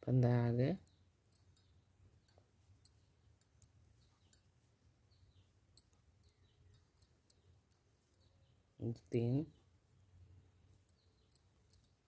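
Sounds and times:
knitting needles clicking: 0.7s - 4.6s, 5.3s - 9.4s, 10.6s - 12.0s.

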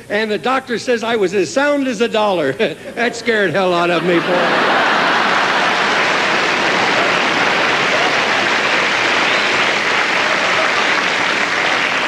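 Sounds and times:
audience laughing: 2.7s - 12.0s
audience applauding: 4.1s - 12.0s.

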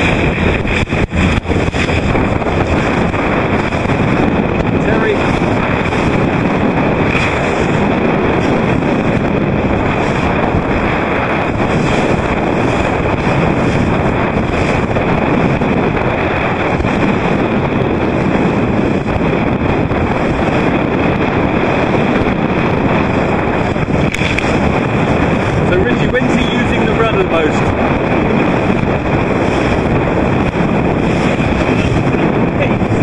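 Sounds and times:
rushing water and waves: 0.0s - 33.0s
wind buffeting microphone: 0.0s - 33.0s.

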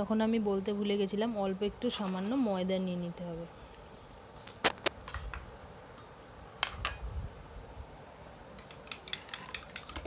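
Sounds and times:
kitchen utensils clicking: 8.6s - 10.0s.

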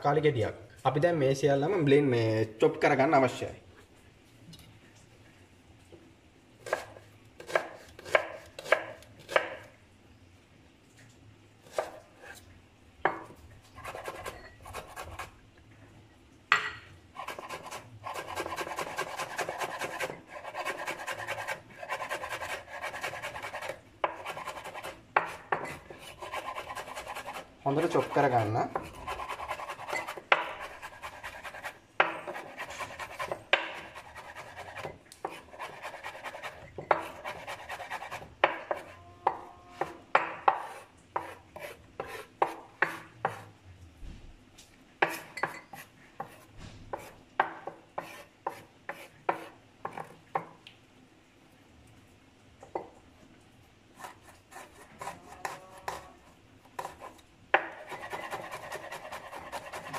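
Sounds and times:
knife chopping on wooden board: 6.6s - 9.7s, 11.6s - 12.0s, 17.2s - 43.5s, 45.0s - 50.6s, 56.8s - 59.9s
knife scraping board: 6.6s - 9.7s, 11.6s - 12.4s, 13.8s - 15.4s, 17.2s - 43.5s, 45.0s - 50.2s, 54.0s - 56.1s, 56.8s - 59.9s.

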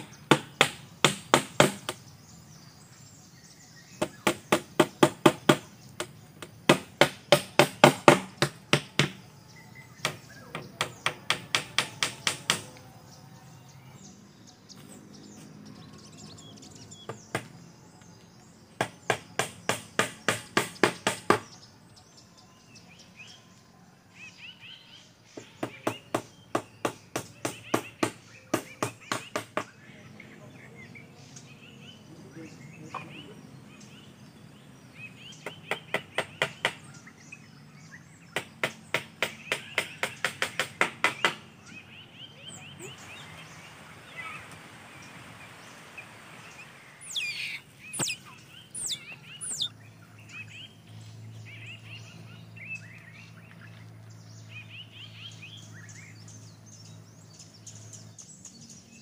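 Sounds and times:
hammer knocking on bamboo: 0.0s - 2.0s, 4.0s - 9.2s, 10.0s - 12.8s, 17.1s - 17.5s, 18.8s - 21.6s, 25.4s - 29.7s, 38.4s - 41.4s, 47.1s - 48.2s.

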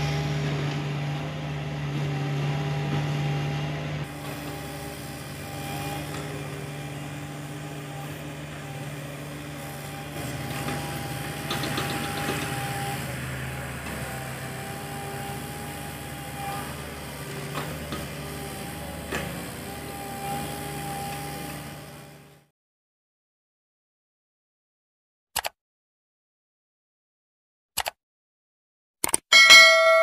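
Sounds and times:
excavator diesel engine running: 0.0s - 22.5s.

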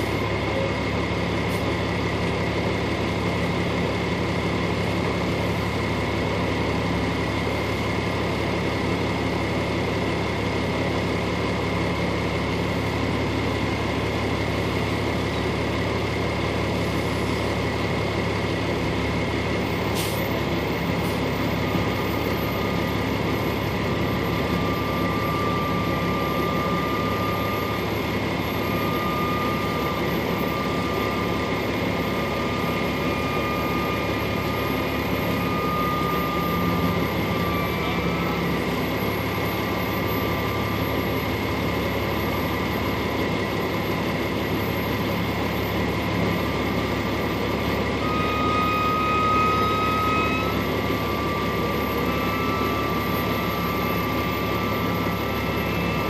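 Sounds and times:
faint high whine: 21.0s - 56.0s.

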